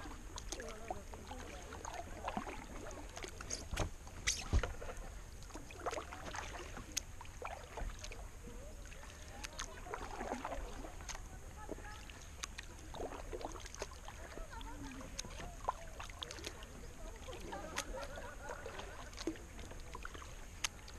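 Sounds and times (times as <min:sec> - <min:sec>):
paddle splashing through water: 0:00.0 - 0:20.9.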